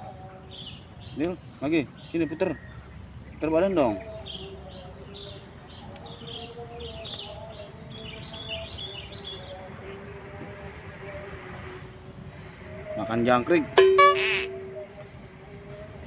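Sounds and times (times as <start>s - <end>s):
birds chirping: 0.0s - 16.0s
high-pitched bird call: 11.4s - 12.1s, 13.8s - 14.9s.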